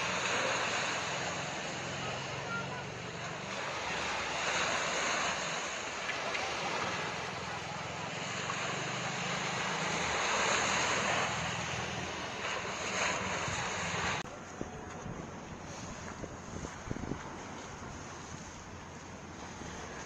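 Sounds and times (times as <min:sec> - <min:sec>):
rushing water: 0:00.0 - 0:20.0
wind buffeting microphone: 0:11.0 - 0:20.0.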